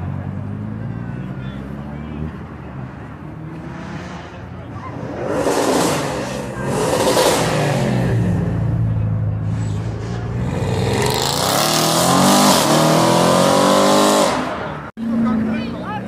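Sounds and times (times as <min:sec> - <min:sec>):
car engine revving: 0:00.0 - 0:15.6.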